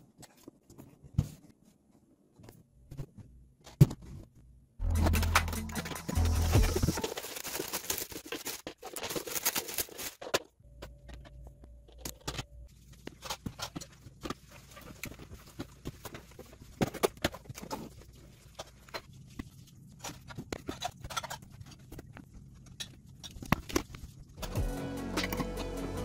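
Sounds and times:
plastic wrapping crinkling: 6.1 - 10.5.

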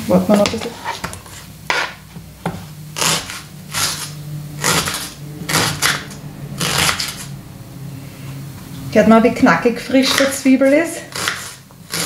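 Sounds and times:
knife crunching through onion: 3.0 - 7.3, 10.0 - 12.0.

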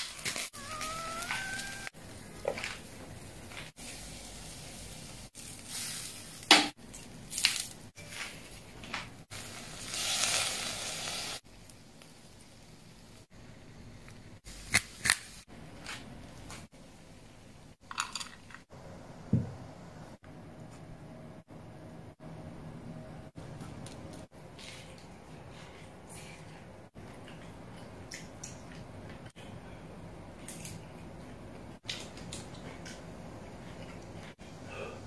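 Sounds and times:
squid sizzling on a grill: 9.3 - 13.2.

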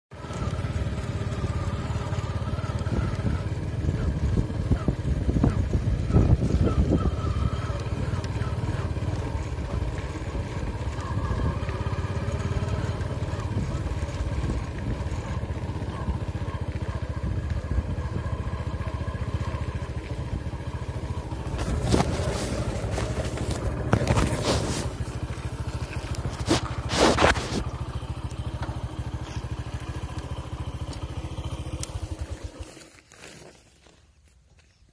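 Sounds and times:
motorcycle engine running: 0.1 - 34.9
sharp knocks and scrapes: 21.5 - 27.6.

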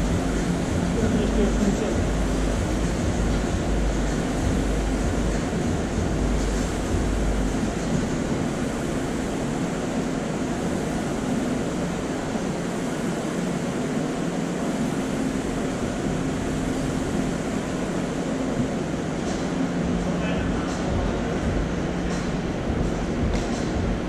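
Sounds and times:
low even hum: 0.0 - 24.0
steady rushing noise: 0.0 - 24.0.

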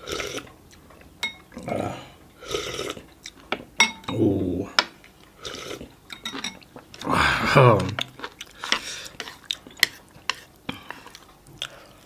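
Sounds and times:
spoon clinking glass bowl: 1.2 - 1.5, 3.8 - 4.2, 6.1 - 6.6
low grunt: 1.6 - 2.2
slurping sips: 2.4 - 3.0.

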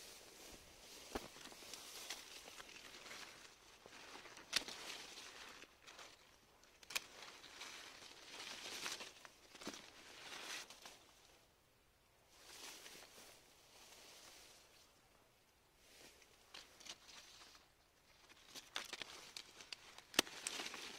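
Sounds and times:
rustle of leaves and twigs: 0.0 - 11.6, 12.2 - 20.9
pruning shears snipping: 4.2 - 7.7, 18.7 - 20.8.

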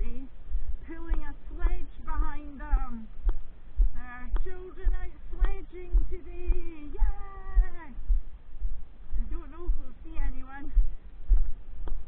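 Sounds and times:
woman singing: 0.0 - 3.1, 4.0 - 8.0
footsteps thudding: 0.6 - 12.0.

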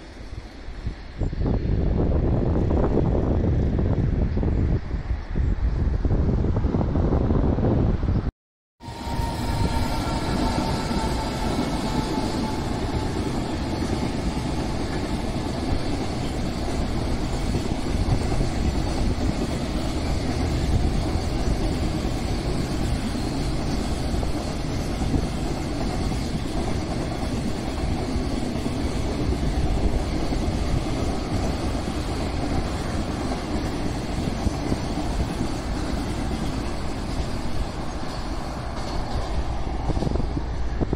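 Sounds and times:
faint thin locomotive whine: 8.8 - 40.9
freight train wagons rolling on rails: 8.8 - 40.9.

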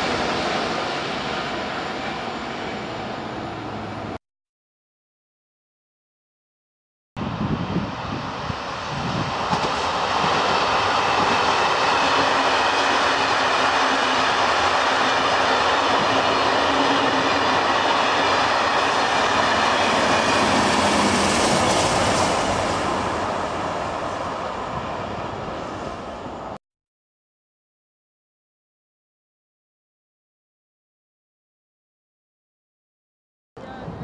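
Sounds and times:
train wheels rumbling on track: 7.2 - 26.6.

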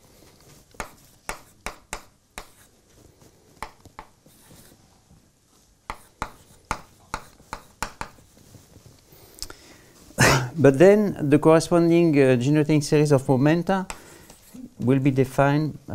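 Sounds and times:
chalk tapping on blackboard: 0.7 - 2.7, 3.6 - 4.7, 5.8 - 8.4, 13.8 - 14.5.

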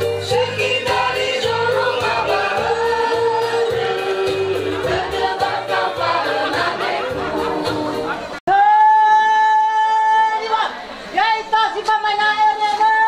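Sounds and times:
women singing in choir: 0.0 - 8.3.

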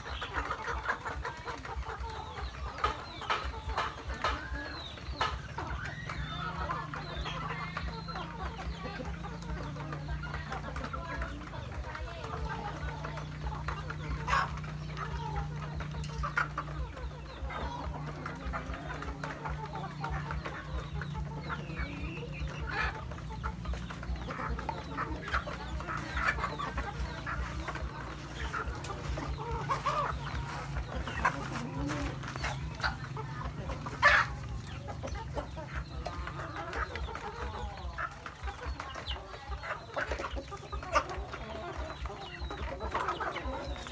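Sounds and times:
chickens clucking: 0.0 - 43.9.

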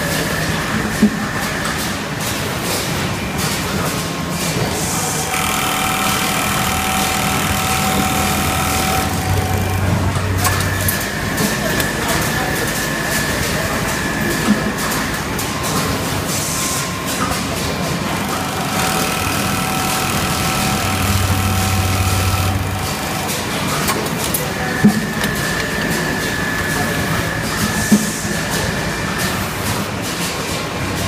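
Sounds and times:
sewing machine running: 5.0 - 14.3, 17.7 - 23.8.

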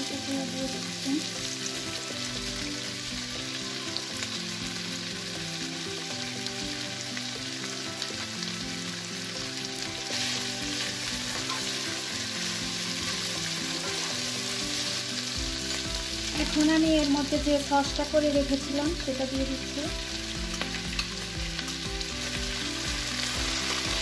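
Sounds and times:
food sizzling in a frying pan: 0.0 - 24.0
spatula stirring in a pan: 10.1 - 15.4.

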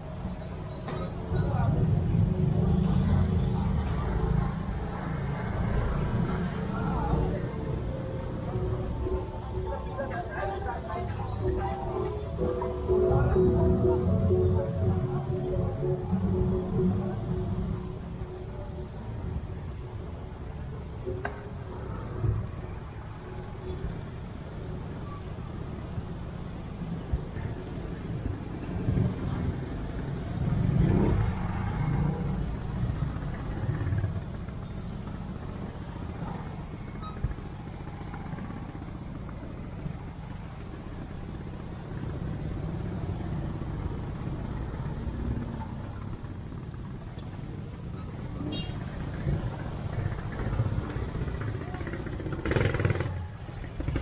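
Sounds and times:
car traffic: 0.0 - 54.0
motorbike engines revving: 26.9 - 54.0.

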